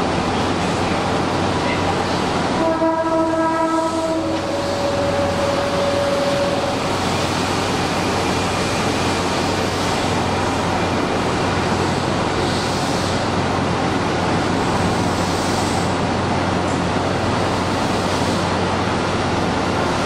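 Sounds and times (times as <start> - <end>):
electric train standing noise: 0.0 - 20.0
train horn chord: 2.6 - 6.8.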